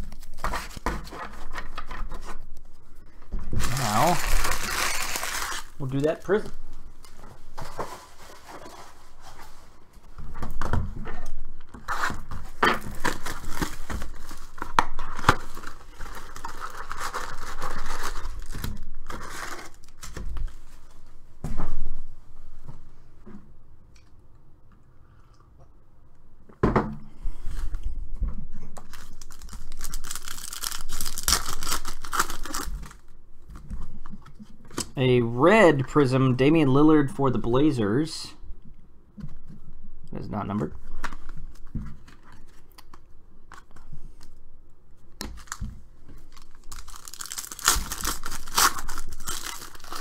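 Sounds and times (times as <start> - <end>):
cardboard box and packs rustling: 3.4 - 6.6, 11.8 - 20.9, 45.4 - 50.0
wrapper tearing with crinkling: 3.6 - 6.5, 12.8 - 20.2, 28.8 - 33.1, 45.4 - 45.6, 46.2 - 50.0.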